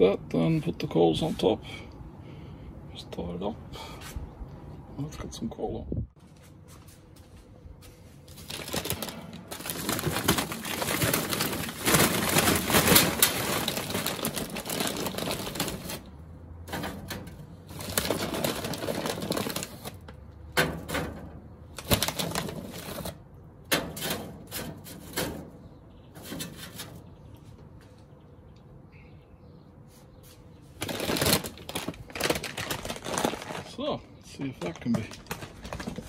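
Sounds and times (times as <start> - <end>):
charcoal clattering on metal: 8.4 - 27.1.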